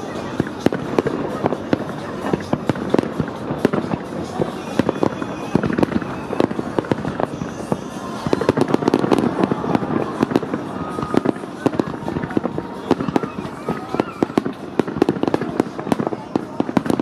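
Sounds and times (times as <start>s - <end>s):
fireworks bangs: 0.0s - 17.0s
fireworks crackling: 0.0s - 17.0s.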